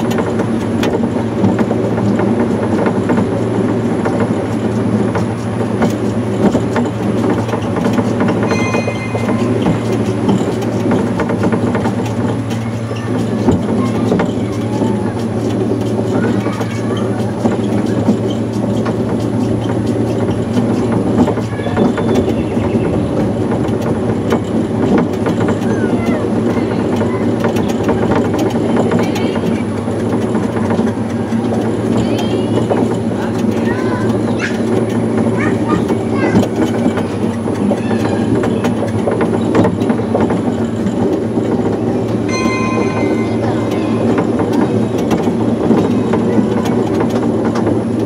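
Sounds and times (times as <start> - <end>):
low motor hum: 0.0 - 48.0
monorail car rattling on track: 0.0 - 48.0
brief high tone: 8.5 - 10.4, 42.3 - 44.9.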